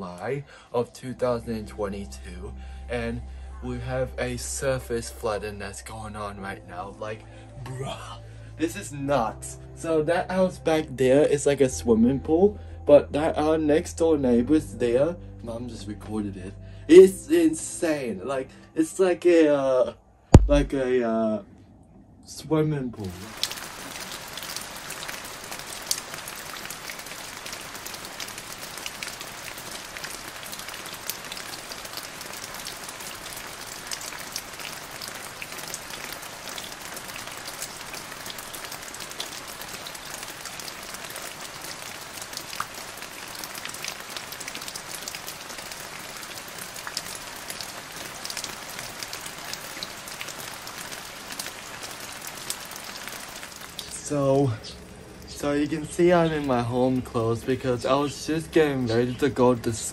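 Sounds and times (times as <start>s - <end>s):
heavy rain on floodwater: 23.1s - 54.5s.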